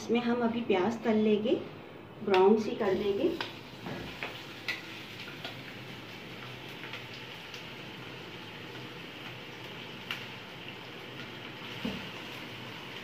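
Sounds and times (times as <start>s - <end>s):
onions sizzling in hot oil: 2.7s - 13.0s.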